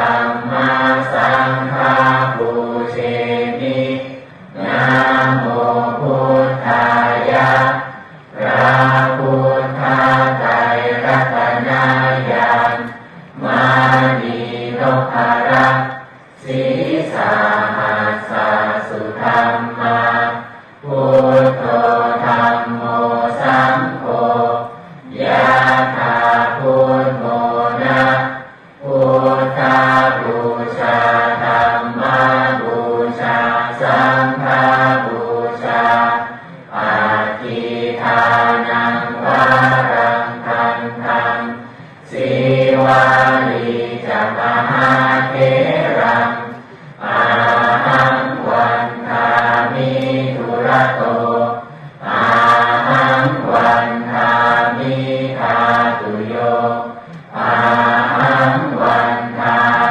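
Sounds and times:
low chanting: 0.0 - 59.9.

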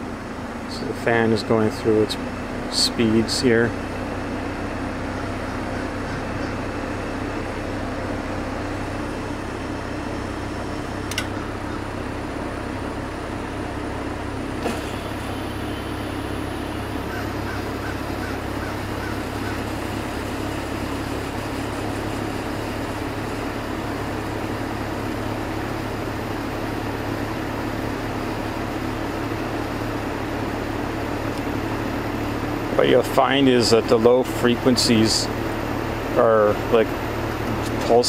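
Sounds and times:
heat pump unit humming: 0.0 - 38.0
single click: 11.1 - 11.4.

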